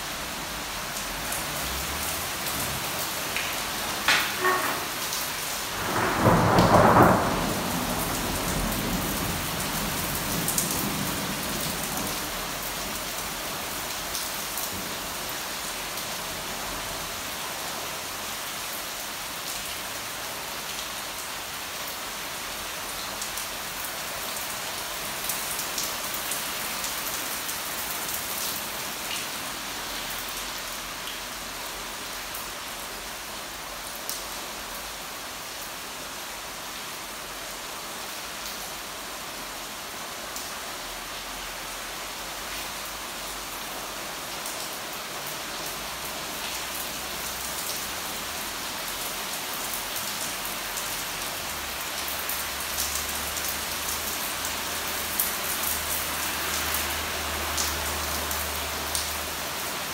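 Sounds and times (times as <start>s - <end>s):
heavy rain: 0.0s - 59.9s
thunder crack and rumble: 5.7s - 11.7s.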